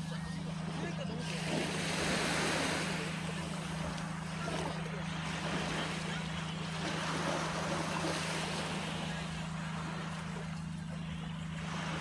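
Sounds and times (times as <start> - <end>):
steady low hum: 0.0 - 12.0
waves washing onto sandy beach: 0.0 - 12.0.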